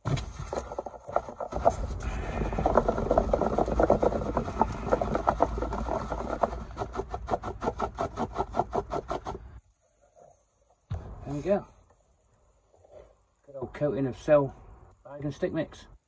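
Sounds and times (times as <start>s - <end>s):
bait balls rattling in container: 0.2s - 7.2s.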